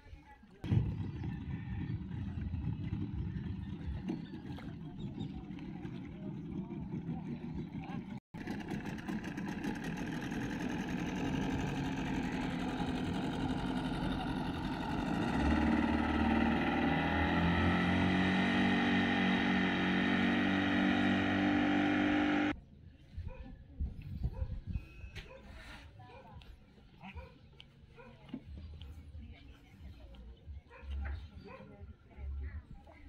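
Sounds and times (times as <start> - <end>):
outboard motor passing: 0.6 - 22.6.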